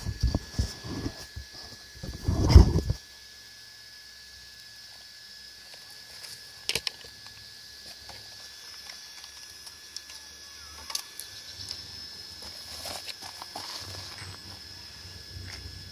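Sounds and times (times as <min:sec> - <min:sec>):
toy handling clicks and knocks: 0:06.3 - 0:07.4, 0:10.8 - 0:11.8.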